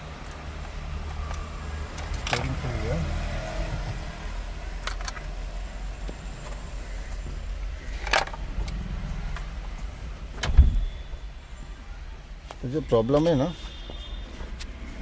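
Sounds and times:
tools clicking and knocking: 4.8s - 5.3s.

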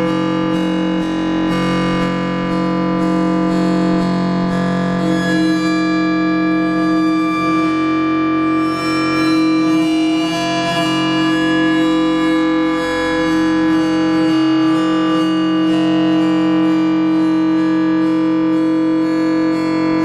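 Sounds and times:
steady low synth note: 0.0s - 20.0s.

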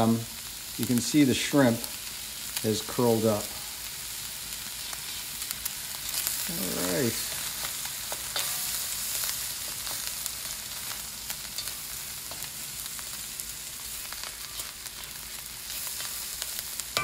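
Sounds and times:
food sizzling in a wok: 0.0s - 17.0s
spatula scraping a pan: 7.1s - 10.1s, 10.7s - 12.9s, 14.0s - 17.0s.

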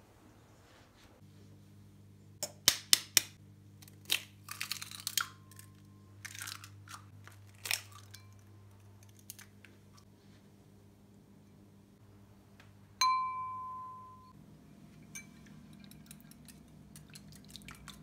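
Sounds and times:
faint low hum: 0.0s - 2.7s, 3.4s - 18.0s
eggshell crackling apart: 2.6s - 9.7s.

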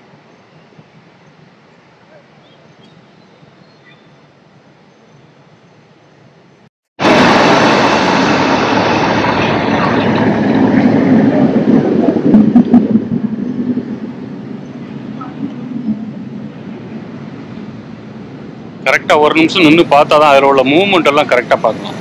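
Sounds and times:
recorded waterfall rushing: 16.5s - 22.0s.

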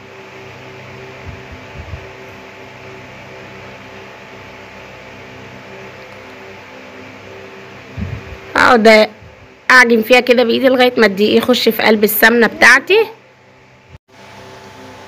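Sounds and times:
background hum with hiss: 0.0s - 15.0s.

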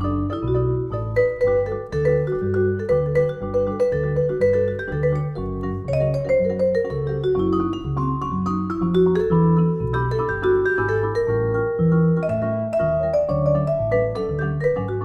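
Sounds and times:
vibraphone chords: 0.0s - 15.0s.

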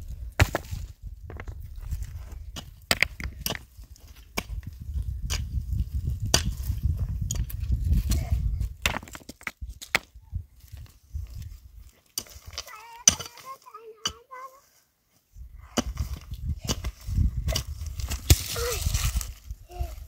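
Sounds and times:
sharp knocks and cracks: 6.3s - 6.6s.

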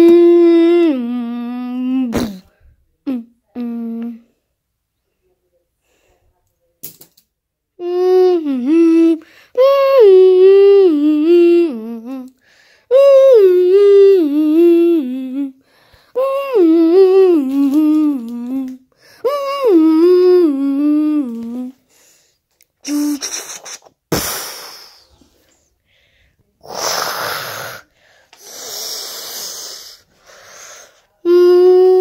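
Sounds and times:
person humming: 0.0s - 4.3s, 7.8s - 15.6s, 16.2s - 21.8s, 22.8s - 25.1s, 26.6s - 27.8s, 31.2s - 32.0s.

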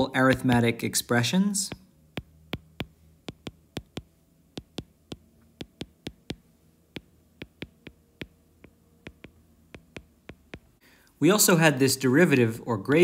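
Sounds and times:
stylus tapping on glass screen: 0.2s - 0.8s, 1.7s - 10.8s.

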